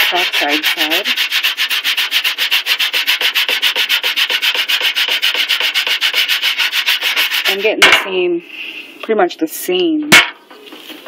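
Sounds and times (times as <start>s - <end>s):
foil scrubbing metal sheet: 0.0s - 8.0s.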